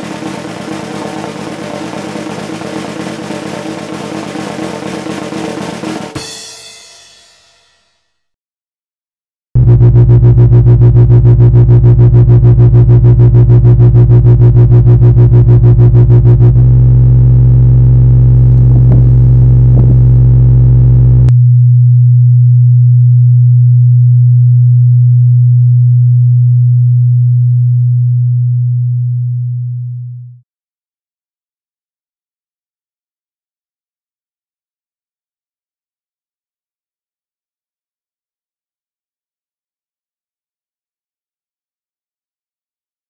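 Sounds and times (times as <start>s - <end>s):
electronic low drone: 9.6s - 30.4s.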